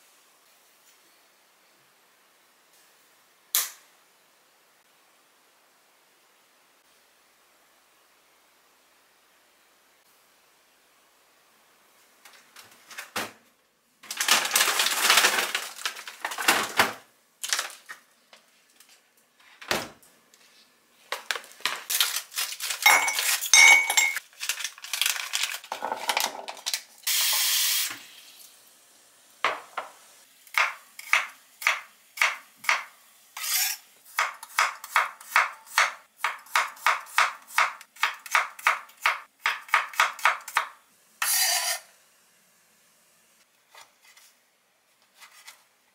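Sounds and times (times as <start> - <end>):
plastic bag crinkling: 14.0 - 16.8, 17.4 - 18.1, 21.1 - 27.0
glass cups clinking: 22.8 - 24.2.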